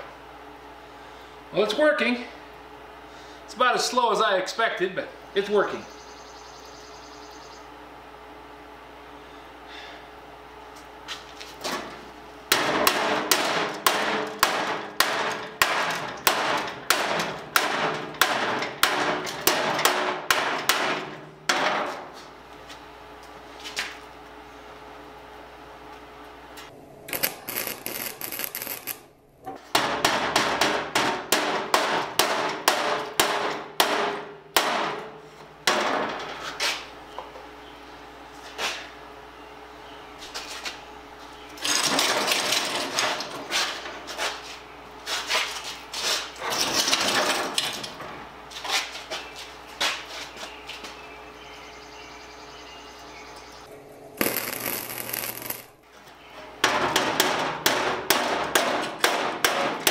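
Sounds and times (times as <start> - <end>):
welding arc crackling: 27.1 - 29.2, 54.2 - 55.8.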